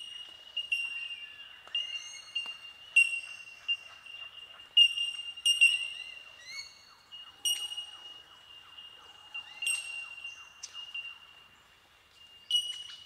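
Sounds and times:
bell-like bird calls: 0.0 - 11.5, 12.2 - 13.0.

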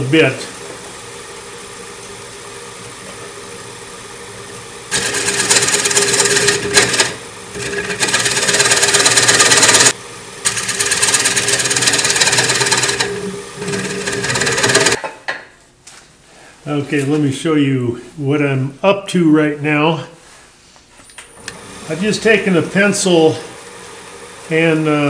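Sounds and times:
wood lathe running: 0.0 - 15.0, 21.4 - 25.0
scraper cutting spinning wood: 4.9 - 15.0.

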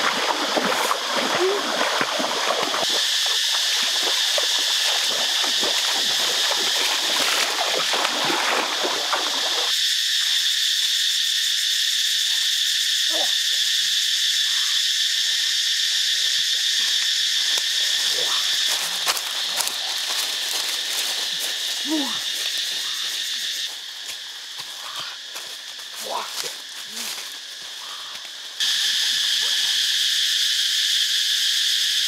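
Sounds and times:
insects droning: 0.0 - 32.0
rustling through leaves: 18.5 - 23.2.

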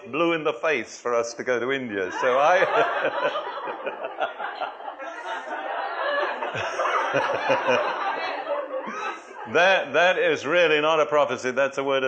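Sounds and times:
people talking: 0.0 - 3.4, 5.1 - 12.0
people laughing: 2.0 - 10.8.

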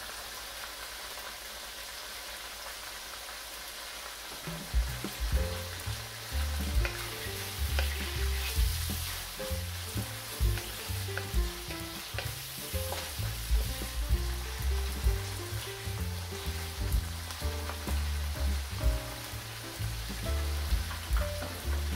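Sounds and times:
chicken sizzling in oil: 0.0 - 21.9
wooden spatula knocking in wok: 4.4 - 19.2, 19.8 - 21.9.

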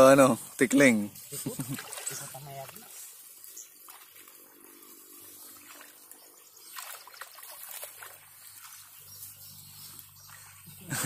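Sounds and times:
water sloshing while wading: 1.2 - 11.0
loud water splashes: 1.5 - 2.4.

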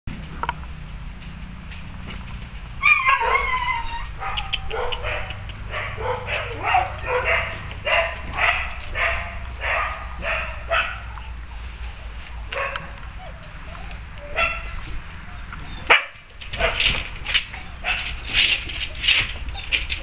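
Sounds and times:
small dog yelping and yapping: 2.8 - 11.1, 12.6 - 14.8.

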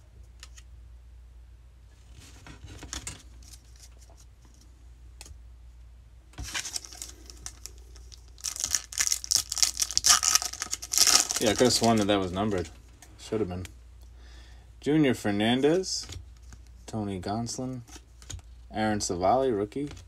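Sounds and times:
cards clicking and rustling: 6.4 - 12.7
foil wrapper crinkling: 6.4 - 12.7.

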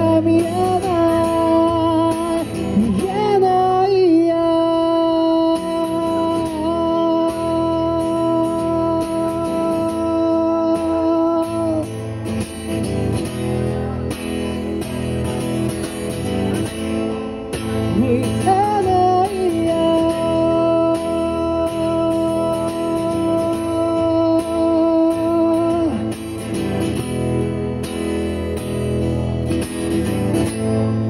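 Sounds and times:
man singing: 0.0 - 12.2, 16.5 - 26.7
acoustic guitar strumming: 0.0 - 31.0.

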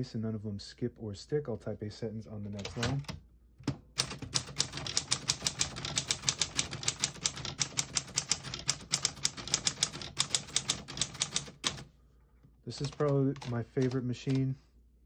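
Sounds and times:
typewriter typing: 2.6 - 11.9, 12.7 - 14.5.

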